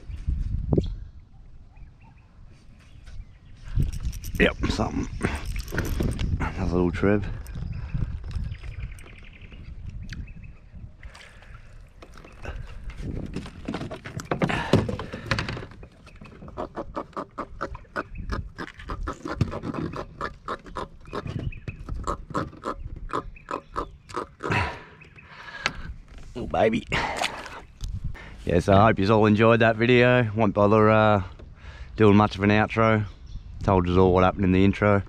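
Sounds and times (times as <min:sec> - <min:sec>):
fish knocking against hull: 0:12.0 - 0:17.7
fish grunting croaks: 0:16.4 - 0:25.2.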